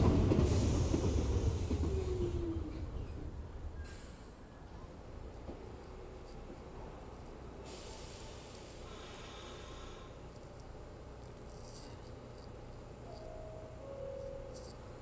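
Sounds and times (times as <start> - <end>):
train low rumble: 0.0 - 15.0
burst of hiss: 7.7 - 10.1
short steady tone: 13.0 - 14.8.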